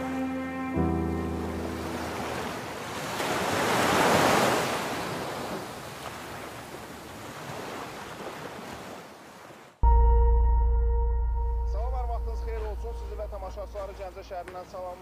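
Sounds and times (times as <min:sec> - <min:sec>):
surf washing onto beach: 0:01.2 - 0:09.1.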